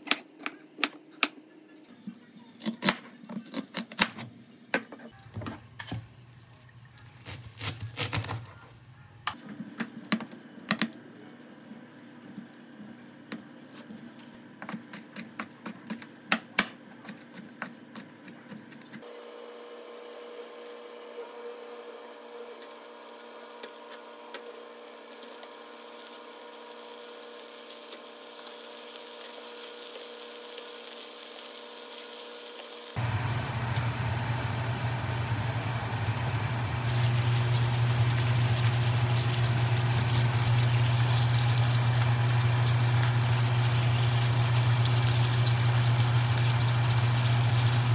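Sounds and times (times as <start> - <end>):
food sizzling in a frying pan: 21.8 - 33.0, 35.8 - 47.9.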